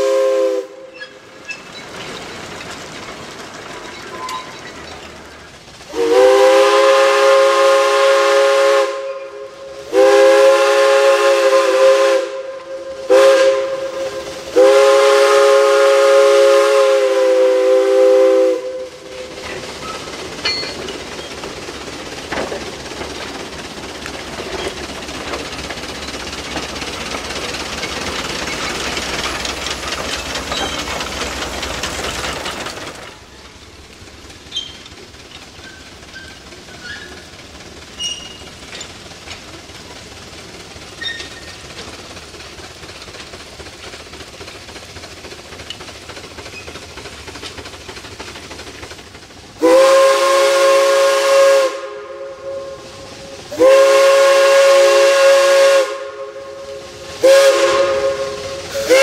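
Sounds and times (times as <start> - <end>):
steam whistle blasts: 0.0 - 1.2, 5.9 - 19.3, 49.6 - 59.0
steam locomotive rolling past: 0.0 - 59.0.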